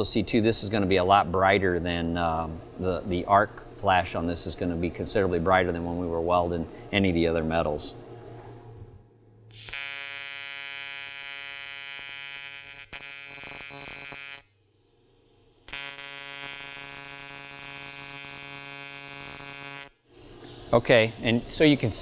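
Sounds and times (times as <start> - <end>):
welding arc buzzing: 9.5 - 20.8.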